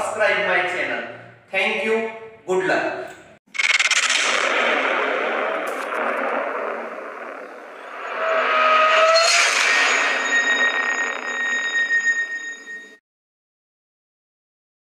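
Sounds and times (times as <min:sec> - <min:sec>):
noisy whoosh: 0:03.5 - 0:13.0
faint rising tone: 0:05.7 - 0:13.0.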